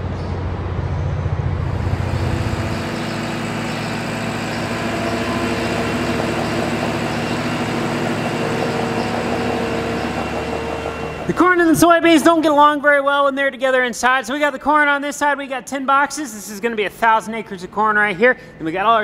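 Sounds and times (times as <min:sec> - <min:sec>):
farm machinery engine running: 0:00.5 - 0:12.4.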